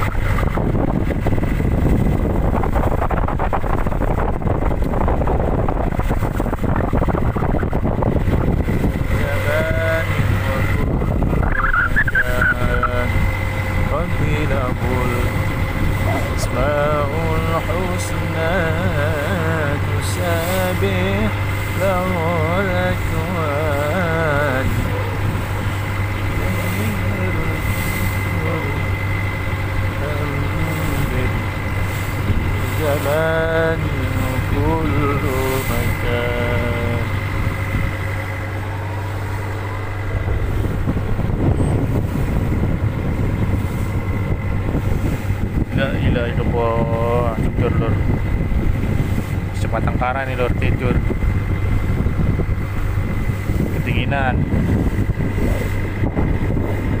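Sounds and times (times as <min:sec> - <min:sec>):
rushing water: 0:00.0 - 0:46.7
boat engine pulsing hum: 0:00.0 - 0:57.0
wind: 0:00.0 - 0:57.0
person singing: 0:26.4 - 0:29.0, 0:32.7 - 0:37.2.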